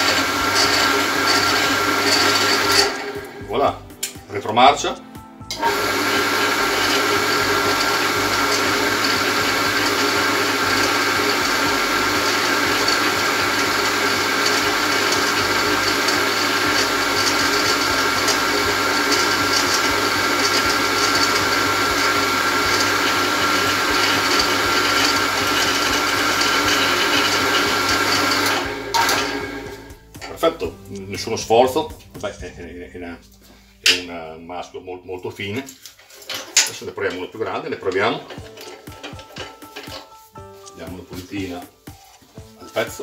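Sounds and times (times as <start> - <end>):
pillar drill motor running: 0.0 - 3.4, 5.6 - 29.9.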